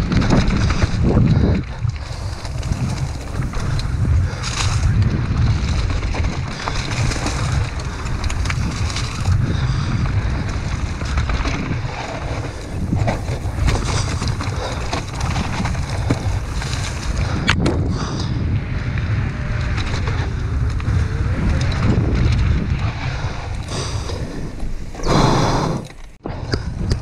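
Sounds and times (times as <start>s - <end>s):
tyres rolling over dirt and leaves: 0.0s - 17.6s
bike rattling and clicking: 0.0s - 27.0s
wind buffeting microphone: 0.0s - 27.0s.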